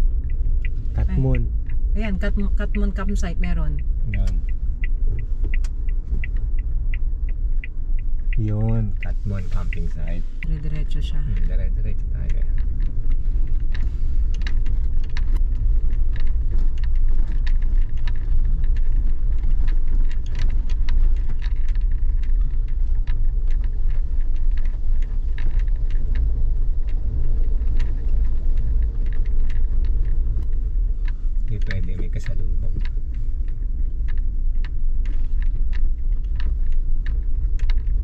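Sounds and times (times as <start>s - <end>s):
car driving rumble: 0.0s - 38.0s.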